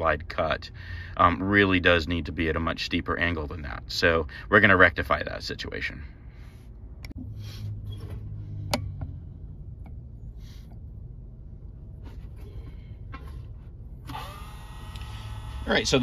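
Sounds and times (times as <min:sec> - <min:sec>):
steady low hum: 0:00.0 - 0:16.0
sharpening machine motor whine: 0:14.1 - 0:16.0.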